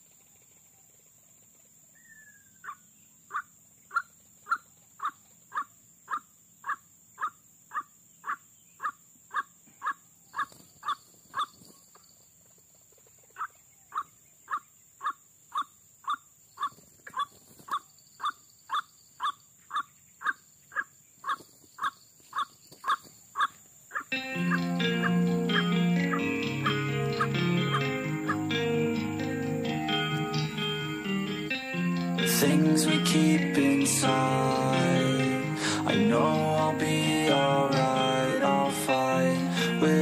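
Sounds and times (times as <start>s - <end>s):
waterhen calling: 2.1s - 11.5s, 13.4s - 28.6s.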